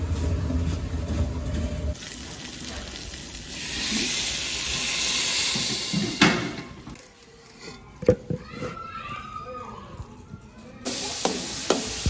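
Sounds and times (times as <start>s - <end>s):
water sizzling in hot pot: 2.0s - 6.9s, 10.9s - 12.0s.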